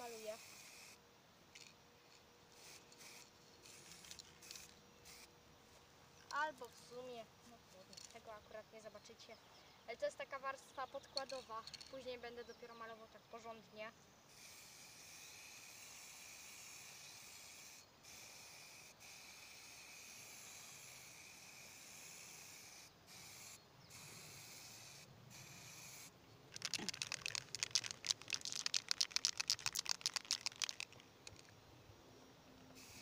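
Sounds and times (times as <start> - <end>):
spray paint can hissing: 0.0 - 1.0, 2.6 - 5.3, 14.3 - 31.4, 32.8 - 33.0
spray can ball rattling: 2.6 - 5.3, 24.4 - 31.5.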